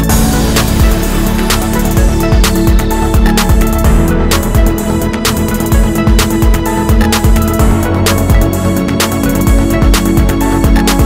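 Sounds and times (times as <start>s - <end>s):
electronic music with drum beat: 0.0s - 11.0s.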